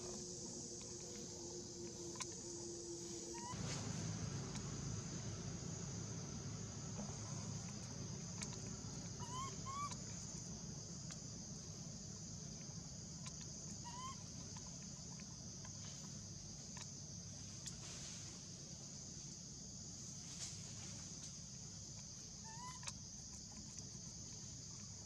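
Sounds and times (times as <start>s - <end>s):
high-pitched insect drone: 0.0s - 10.4s
animal rising chirps: 3.2s - 3.6s, 9.2s - 10.0s.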